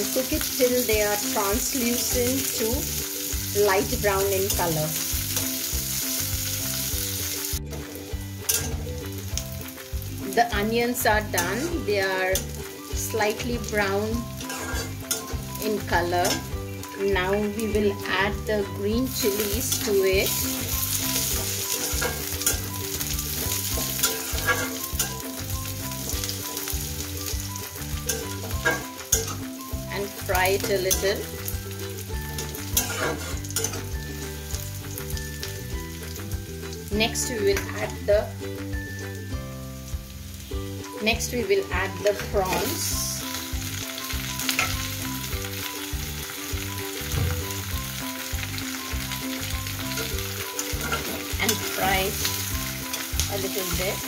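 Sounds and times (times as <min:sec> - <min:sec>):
onions sizzling in hot oil: 0:00.0 - 0:54.0
metal spatula scraping a pan: 0:14.2 - 0:15.6, 0:19.1 - 0:26.7, 0:27.6 - 0:30.0, 0:32.3 - 0:34.0, 0:49.8 - 0:53.2.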